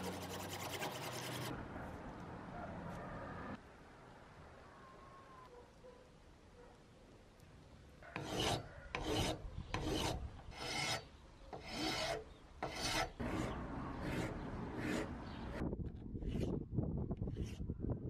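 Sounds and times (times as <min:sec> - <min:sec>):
metal file rasping on handle: 0:08.2 - 0:15.6.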